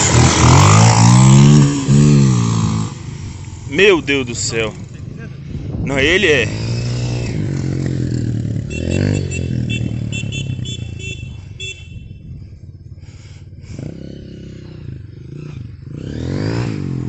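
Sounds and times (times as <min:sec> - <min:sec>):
motorcycle engine idling: 0:07.5 - 0:16.0.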